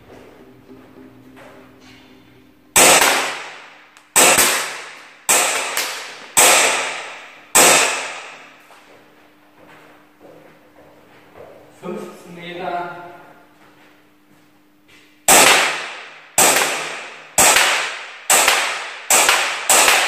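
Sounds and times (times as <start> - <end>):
pistol shots with echo: 2.8 - 8.6, 15.3 - 20.0.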